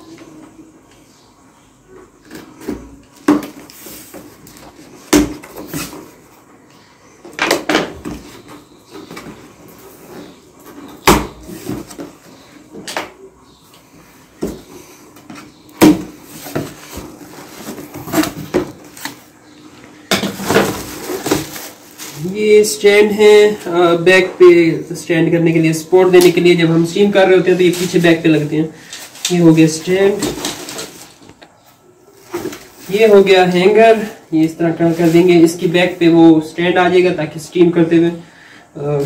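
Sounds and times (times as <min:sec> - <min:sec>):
cardboard knocks and thuds: 0:15.8 - 0:17.0
plastic wrap rustling: 0:20.2 - 0:23.8, 0:25.7 - 0:31.4, 0:32.1 - 0:36.2.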